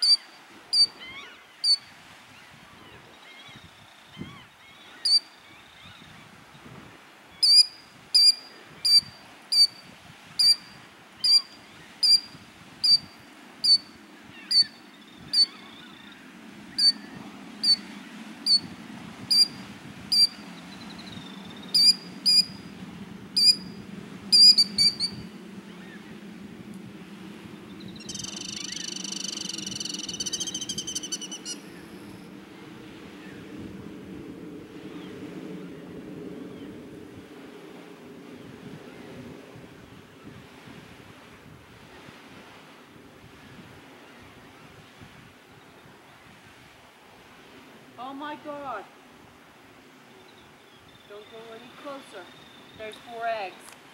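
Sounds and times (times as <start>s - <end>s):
bird alarm calls: 0.0s - 1.8s, 4.9s - 5.3s, 7.4s - 9.8s, 10.4s - 17.9s, 19.3s - 22.6s, 23.4s - 23.7s, 24.3s - 26.0s, 27.9s - 31.6s
high bird trill: 0.0s - 1.9s, 4.8s - 6.0s, 7.4s - 9.8s, 10.4s - 17.9s, 18.5s - 18.7s, 19.3s - 22.7s, 23.4s - 26.0s, 27.8s - 31.7s.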